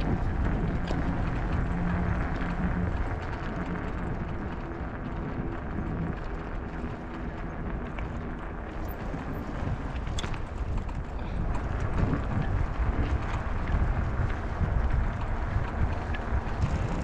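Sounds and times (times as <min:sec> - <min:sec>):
bicycle rolling on pavement: 0:00.0 - 0:17.0
wind rumble on microphone: 0:00.0 - 0:17.0.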